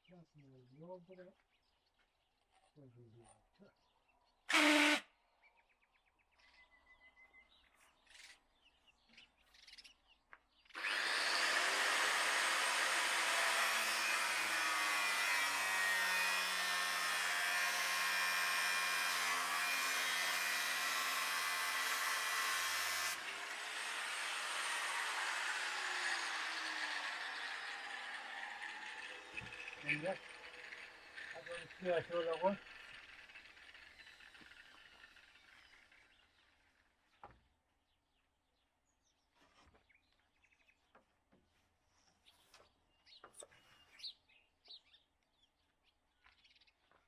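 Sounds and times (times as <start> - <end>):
power tool running: 4.5 - 5.0, 10.8 - 36.4.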